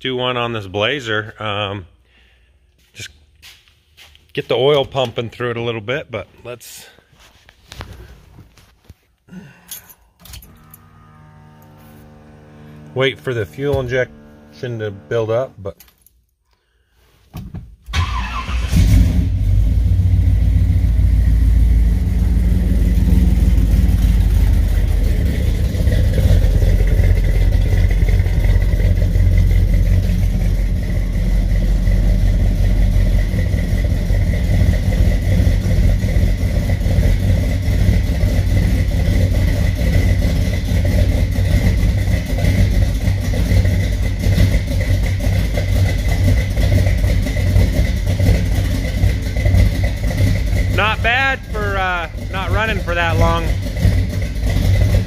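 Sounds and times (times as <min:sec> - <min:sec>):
car engine starting: 0:10.1 - 0:15.8, 0:17.9 - 0:55.0
car engine idling: 0:10.4 - 0:15.7, 0:18.0 - 0:55.0.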